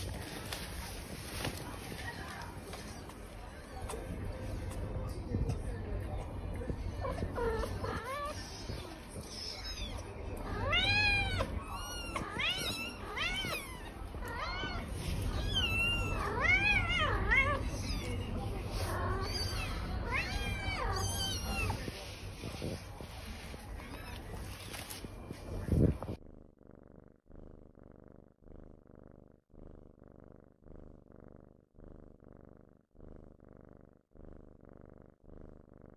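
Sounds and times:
cat purring: 0.0 - 35.9
kitten meowing: 19.2 - 21.9.

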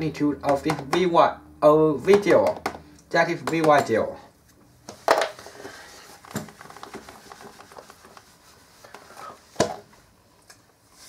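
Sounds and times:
whiteboard being wiped by hand: 4.9 - 10.2.

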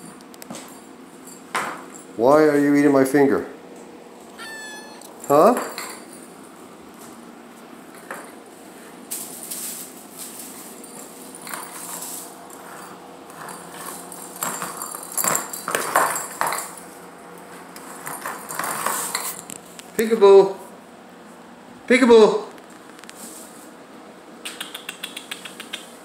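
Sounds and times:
kittens scuffling and scratching: 6.1 - 20.0, 22.5 - 23.8.

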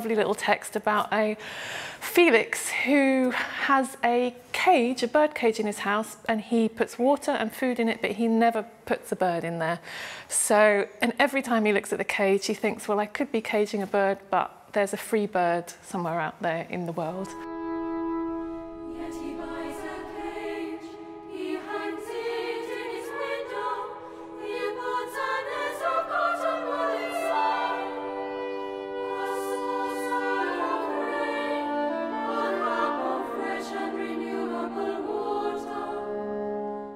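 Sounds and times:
organ accompaniment: 17.3 - 36.9
children's choir singing: 18.8 - 36.9.

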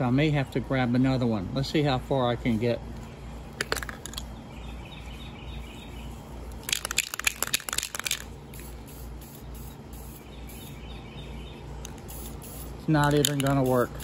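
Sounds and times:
spray can ball rattling: 3.5 - 4.3, 6.5 - 10.8, 11.8 - 14.0.

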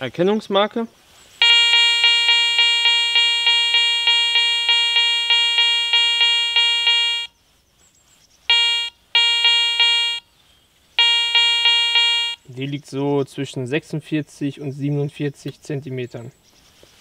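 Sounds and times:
metal detector beeping: 1.4 - 7.4, 8.5 - 10.3, 11.0 - 12.5.

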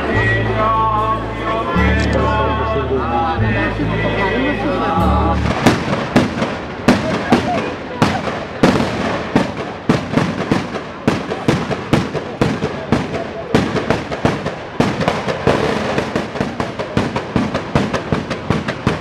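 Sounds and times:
firecrackers banging: 5.2 - 19.0
firecracker crackle: 5.3 - 19.0.

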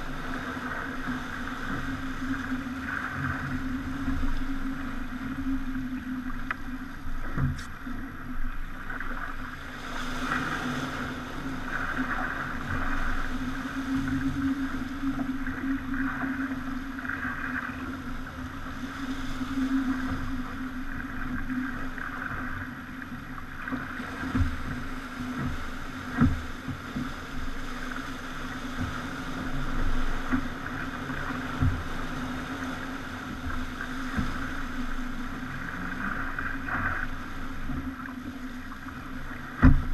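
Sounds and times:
low hum: 0.0 - 39.9
rushing water: 0.0 - 39.9
knocks and thumps: 39.6 - 39.9.

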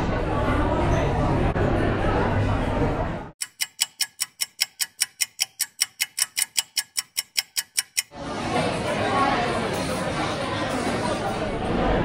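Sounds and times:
fast clock ticking: 3.4 - 8.2.

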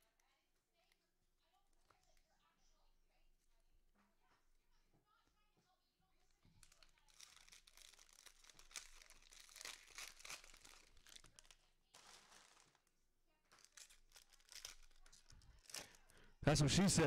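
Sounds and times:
wrapper crinkling and tearing: 6.4 - 16.3.

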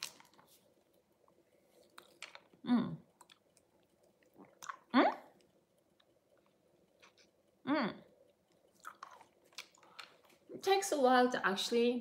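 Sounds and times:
chewing and sucking sweet: 1.3 - 10.5.

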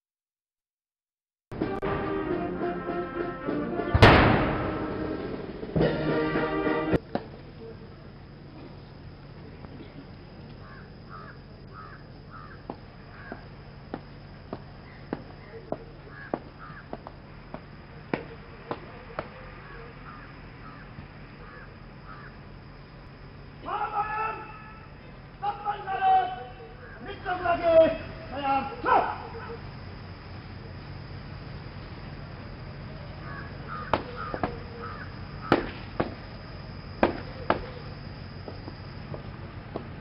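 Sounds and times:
low steady background noise: 2.6 - 40.0
sharp bangs: 3.6 - 7.0, 35.4 - 36.3, 37.0 - 37.8
crows cawing: 10.6 - 13.5, 16.0 - 17.1, 19.6 - 22.4, 26.7 - 27.1, 33.2 - 35.6.

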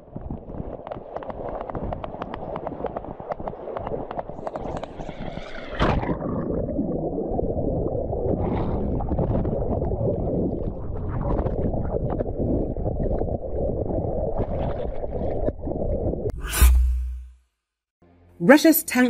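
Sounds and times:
wind on microphone: 0.0 - 16.3.

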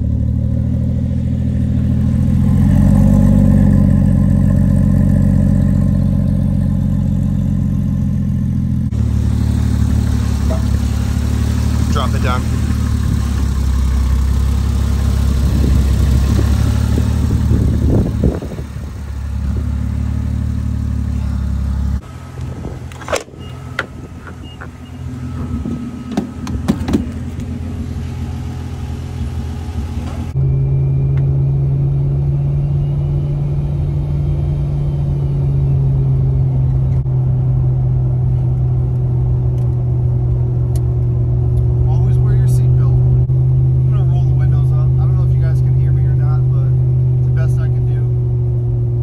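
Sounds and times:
car engine running: 0.0 - 49.0
engine drone inside car: 1.8 - 49.0.

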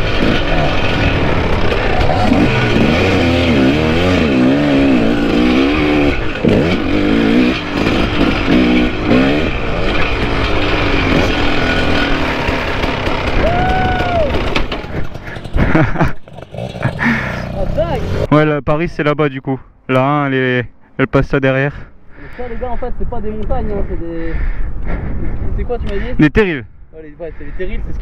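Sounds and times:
motorcycles revving: 0.0 - 18.4.

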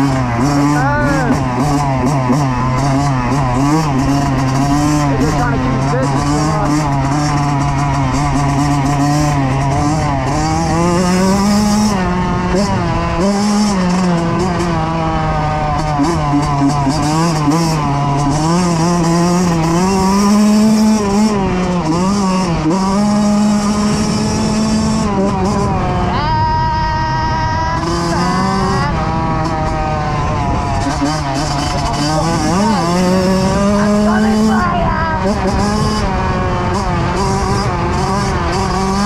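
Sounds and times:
motorcycle engine revving: 0.0 - 39.0
wind on microphone: 23.4 - 38.8.

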